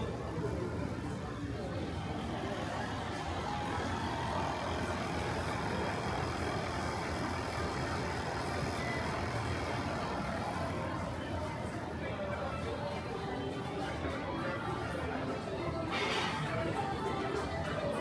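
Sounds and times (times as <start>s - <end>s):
motor running: 1.8s - 11.8s.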